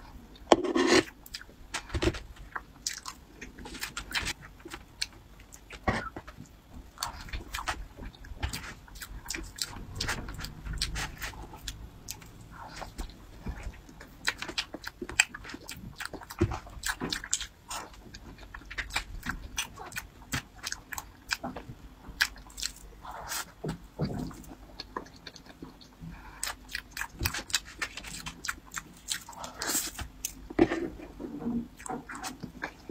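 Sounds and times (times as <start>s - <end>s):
knife and fork scraping plastic tray: 0.5s - 1.1s.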